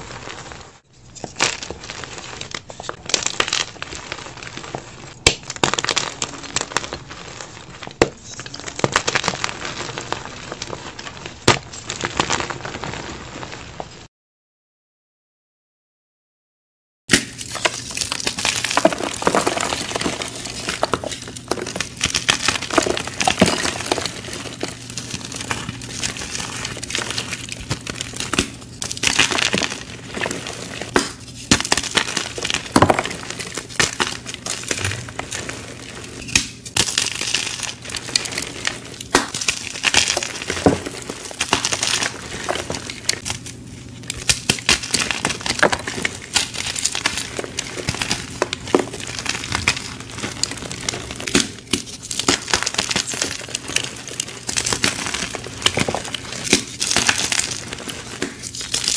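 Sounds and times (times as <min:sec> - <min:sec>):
chalk crunching and crackling: 0:00.0 - 0:14.0, 0:17.1 - 0:58.9
chalk chunks snapping: 0:17.1 - 0:58.9.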